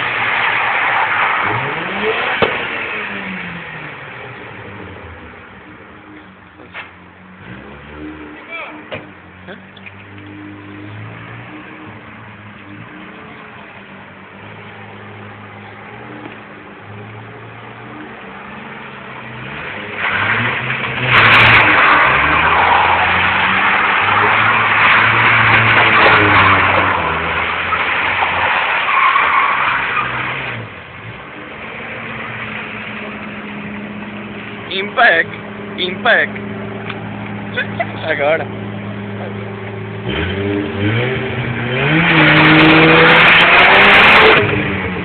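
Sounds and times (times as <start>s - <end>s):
tyres skidding: 0.0s - 45.0s
rotary engine revving: 0.1s - 4.2s, 34.7s - 45.0s.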